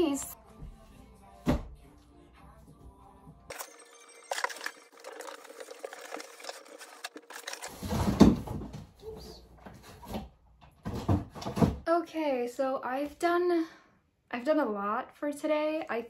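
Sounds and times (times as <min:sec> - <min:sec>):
books rustling and clattering: 0:04.4 - 0:08.9.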